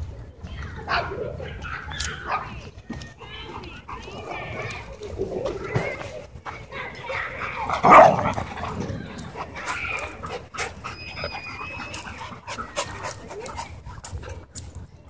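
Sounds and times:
dogs scuffling on dirt and leaves: 1.7s - 15.0s
dogs panting: 3.3s - 14.9s.

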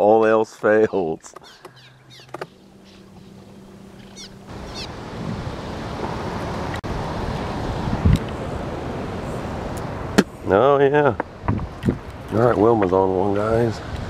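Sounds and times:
steady rushing noise: 3.4s - 14.0s.

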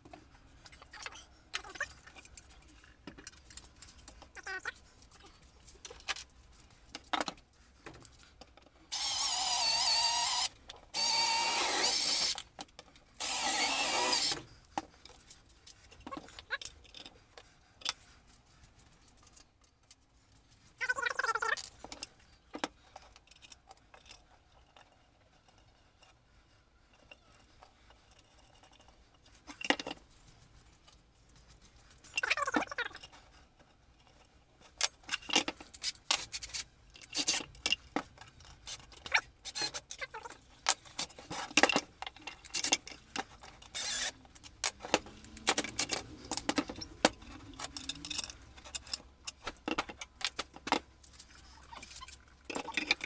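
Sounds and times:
cordless drill driving bolts: 8.9s - 12.4s, 13.2s - 14.4s, 43.7s - 44.2s
metal tools clinking: 41.6s - 50.2s.

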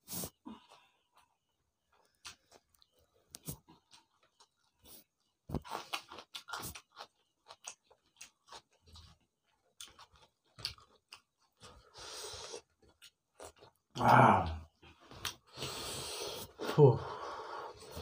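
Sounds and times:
chewing and lip-smacking: 0.6s - 14.0s.

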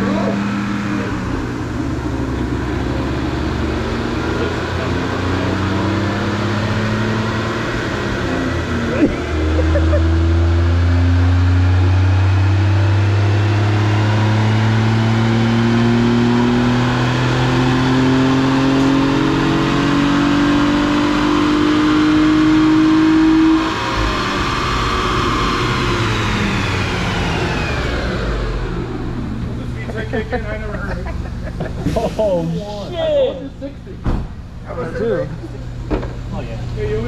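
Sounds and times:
car engine at full throttle: 0.0s - 37.0s.

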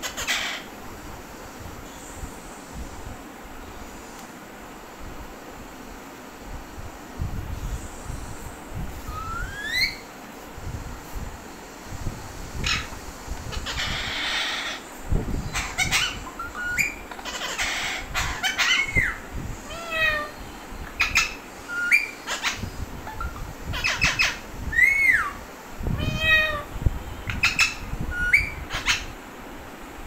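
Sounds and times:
parakeets squawking and screeching: 0.0s - 0.7s, 12.6s - 14.8s, 15.4s - 20.4s, 21.0s - 25.3s, 27.4s - 29.1s.

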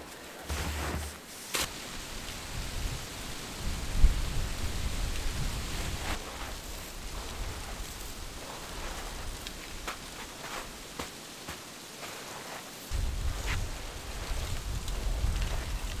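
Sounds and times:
snow being dug and scraped: 0.0s - 1.8s, 5.3s - 16.0s.

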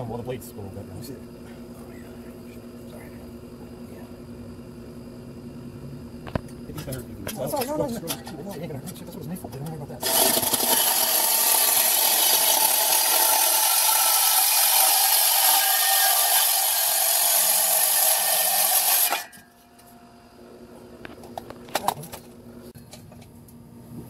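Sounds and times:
reciprocating saw cutting metal pipe: 10.0s - 19.5s.

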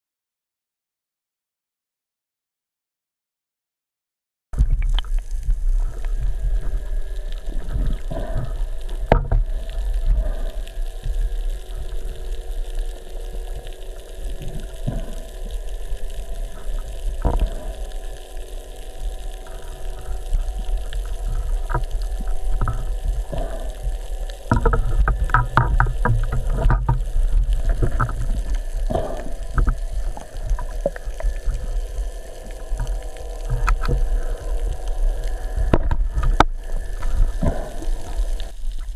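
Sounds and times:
underwater water rumble: 4.6s - 38.9s
sharp clicks and knocks: 24.5s - 27.1s.

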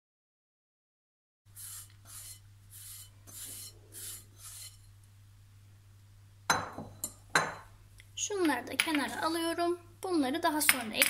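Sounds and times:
hand scraping dough in glass bowl: 1.6s - 4.9s.

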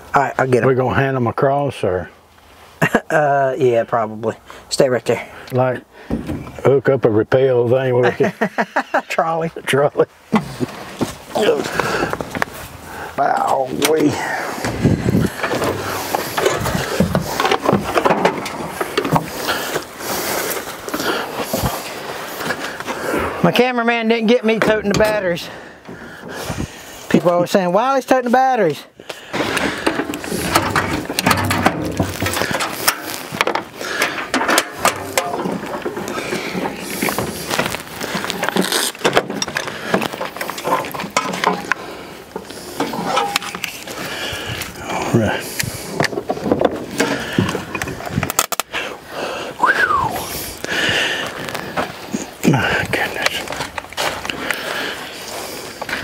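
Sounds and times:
hard objects knocking and clattering: 14.6s - 19.9s, 29.4s - 41.8s, 46.0s - 48.6s
metallic clicking and clanking: 29.4s - 37.2s, 42.4s - 43.8s.

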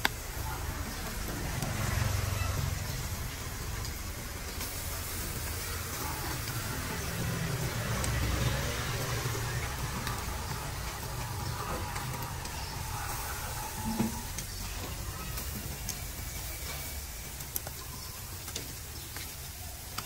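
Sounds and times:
meat sizzling on a grill: 0.0s - 20.0s
street traffic rumble: 0.0s - 20.0s.

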